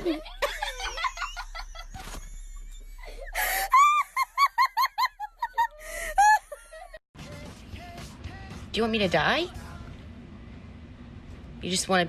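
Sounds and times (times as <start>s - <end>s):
high-pitched wheezy laughs: 0.2s - 7.0s.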